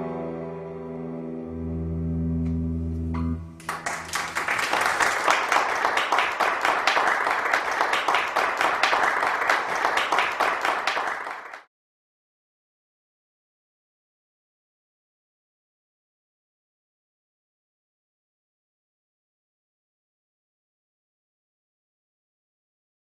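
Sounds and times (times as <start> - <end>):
acoustic guitar notes ringing: 0.0 - 3.6
audience applause: 3.6 - 11.7.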